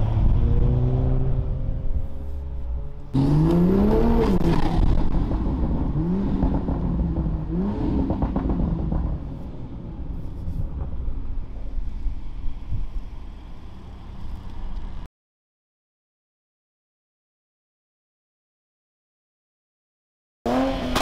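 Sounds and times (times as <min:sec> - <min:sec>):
car engine revving: 0:02.8 - 0:09.7, 0:20.5 - 0:21.0.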